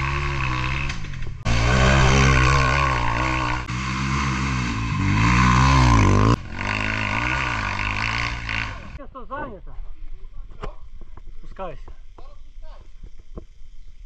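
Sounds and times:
motorcycle engine revving: 0.0s - 9.0s.

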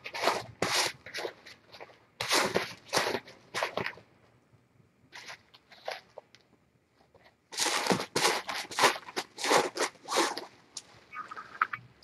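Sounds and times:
kitten scratching in cat litter: 0.0s - 4.0s, 7.5s - 10.5s.

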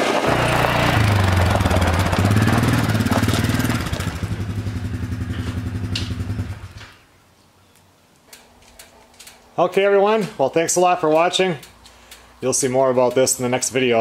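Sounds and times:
atv engine running: 0.0s - 6.8s.

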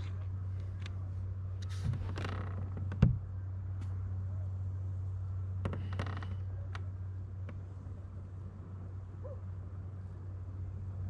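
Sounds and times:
steady low hum: 0.0s - 11.0s
plastic kayak creaks and clicks: 1.6s - 3.1s.

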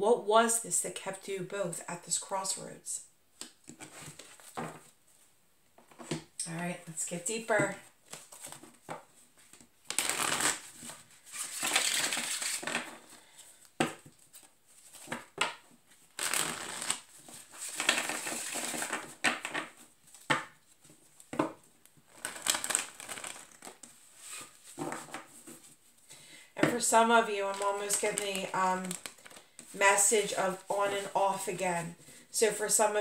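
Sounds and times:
cards rustling while shuffled: 8.0s - 21.4s, 22.0s - 25.9s, 27.4s - 32.1s.

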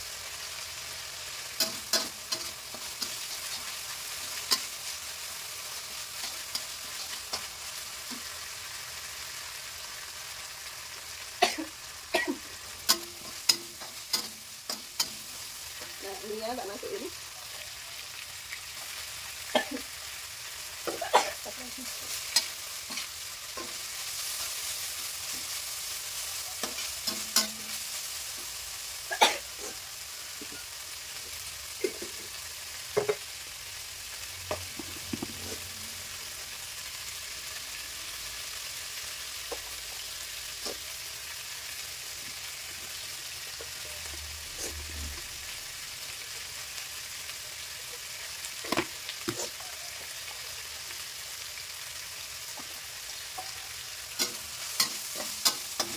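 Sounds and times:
stir-fry sizzling in a wok: 0.0s - 55.9s
metal spatula scraping a wok: 12.4s - 16.6s, 21.9s - 28.5s, 42.9s - 45.6s, 52.6s - 55.9s.

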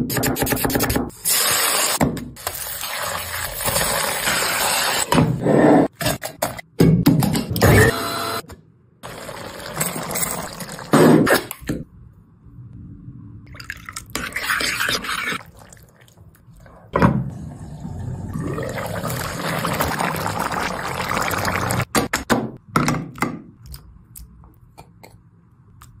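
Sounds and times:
curry sizzling and bubbling: 13.5s - 21.9s
spoon stirring in bowl: 14.1s - 15.8s.

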